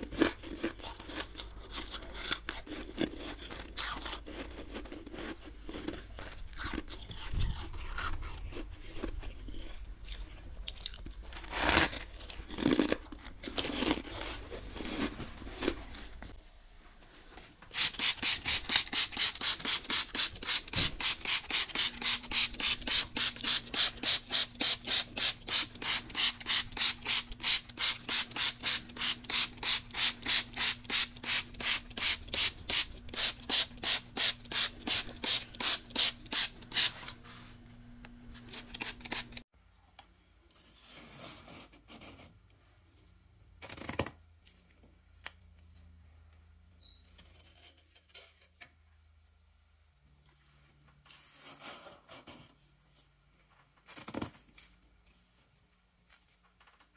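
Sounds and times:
spray bottle hissing sprays: 17.7 - 37.0
metal spoon scraping frost: 17.7 - 37.4, 38.4 - 39.4.

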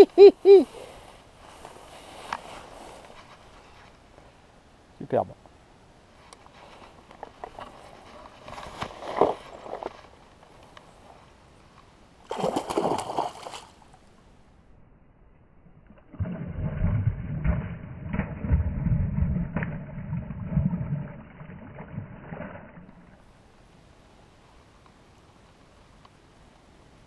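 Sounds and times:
sudden water slaps: 12.3 - 13.7.

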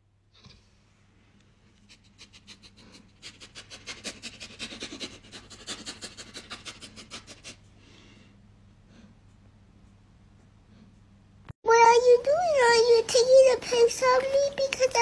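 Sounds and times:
person sniffing quickly: 1.8 - 9.2.

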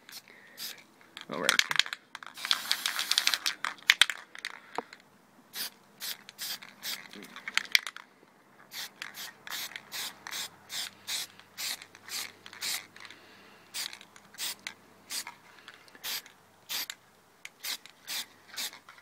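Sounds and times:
spray can hissing bursts: 0.1 - 0.8, 2.4 - 3.4, 5.5 - 7.1, 8.7 - 12.9, 13.7 - 15.3, 16.0 - 17.0, 17.6 - 18.8.

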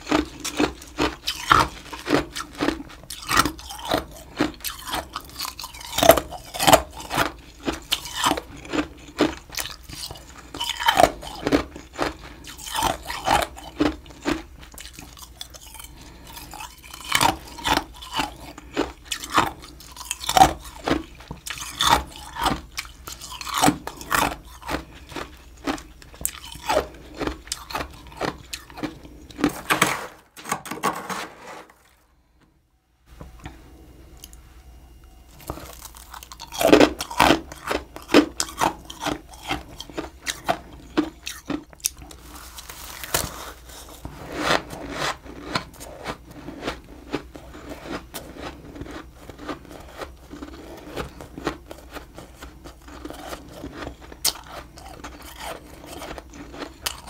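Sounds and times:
frost being chewed: 0.0 - 29.8, 35.3 - 57.0.

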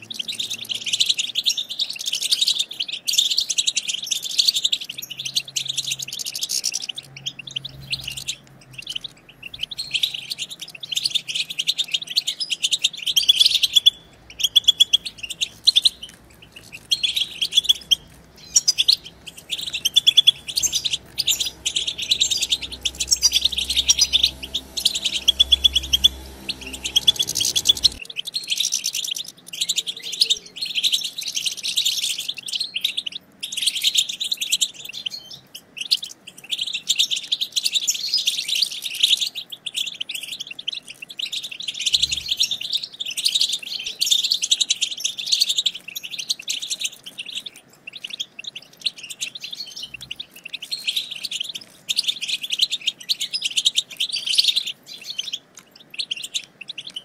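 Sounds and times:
goldfinch chattering: 0.1 - 28.0
low steady hum: 13.3 - 28.1.

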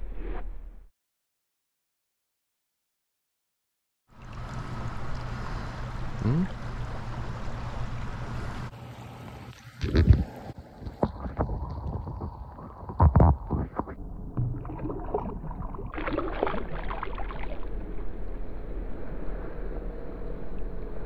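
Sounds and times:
creek water sloshing and gurgling: 9.5 - 17.8.

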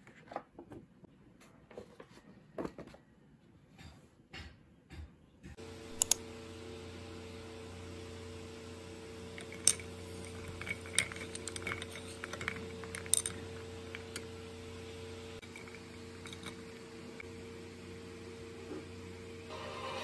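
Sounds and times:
spoon stirring ice in a mug: 9.3 - 14.3, 15.4 - 17.0.

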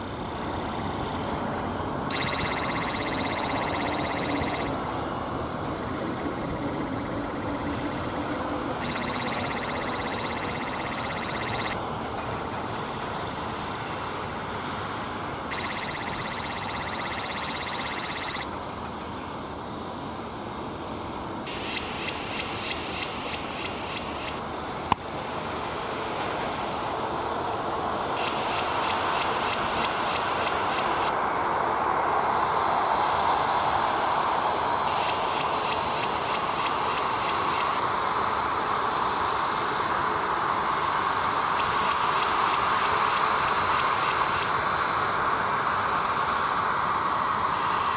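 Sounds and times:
jet engines at taxi power: 0.0 - 47.9
high pulsing buzz: 2.1 - 11.8, 15.5 - 18.5.

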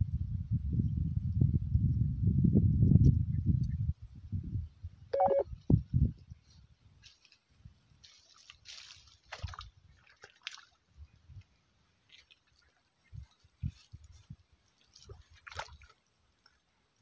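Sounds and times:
lure splashing on water: 8.0 - 10.9, 14.7 - 16.6.

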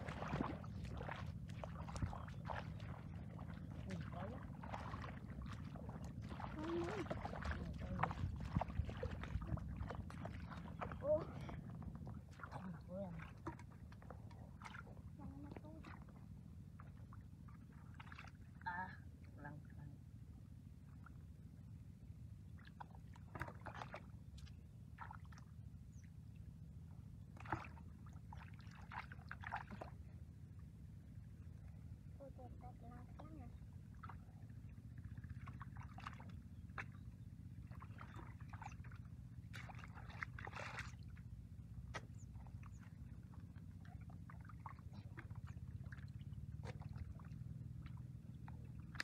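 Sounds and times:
hands splashing in muddy water: 0.0 - 11.6, 27.4 - 30.0, 37.7 - 41.2, 41.8 - 49.0
steady low rumble: 0.0 - 49.0.

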